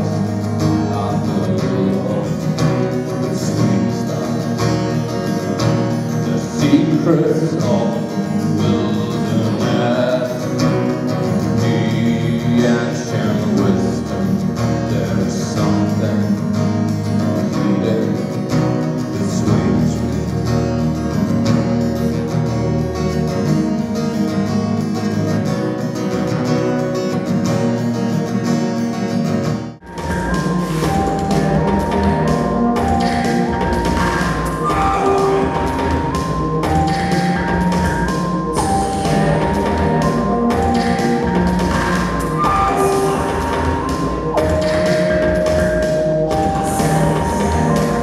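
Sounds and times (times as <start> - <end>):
man singing: 0.0 - 20.9, 29.9 - 48.0
acoustic guitar strumming: 0.0 - 48.0
electronic music: 29.8 - 48.0.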